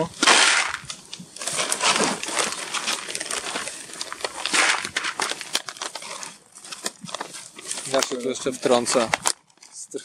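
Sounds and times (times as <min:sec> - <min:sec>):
plastic bags rustling: 0:00.0 - 0:10.0
bait pellets rattling in buckets: 0:00.2 - 0:07.2.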